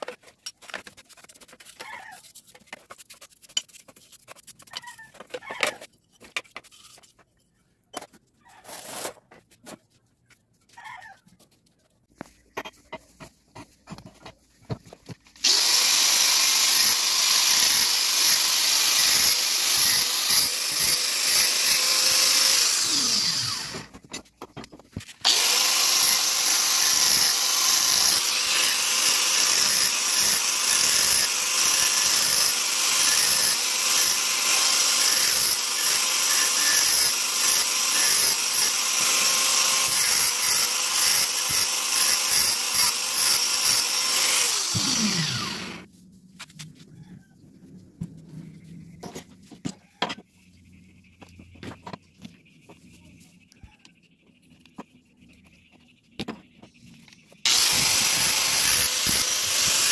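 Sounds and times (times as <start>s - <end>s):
angle grinder grinding metal: 15.4s - 23.9s, 25.2s - 45.9s, 57.4s - 59.9s.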